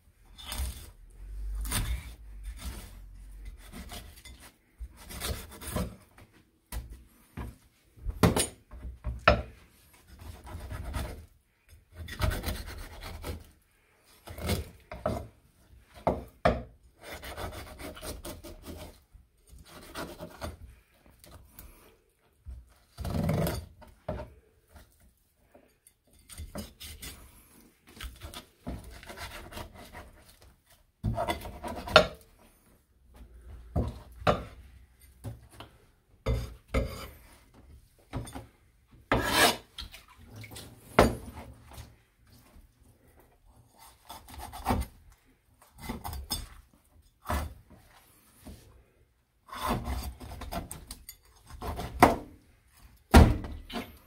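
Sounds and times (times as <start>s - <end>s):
knife rasping through fish skin: 0.4s - 6.0s, 11.9s - 13.5s, 17.0s - 20.6s, 27.9s - 30.4s, 39.1s - 40.2s, 43.6s - 45.0s, 49.5s - 52.1s.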